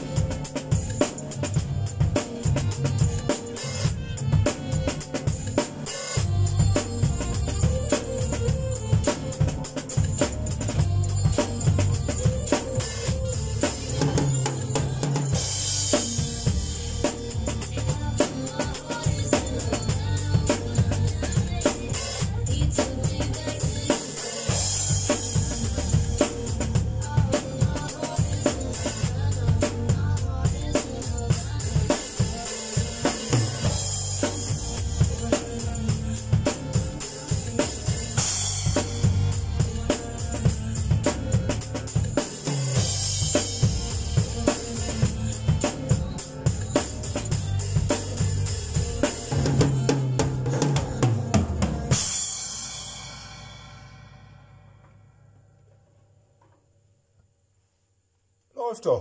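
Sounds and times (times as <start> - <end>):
drum kit groove: 0.0 - 56.6
cymbal crashes: 52.0 - 55.6.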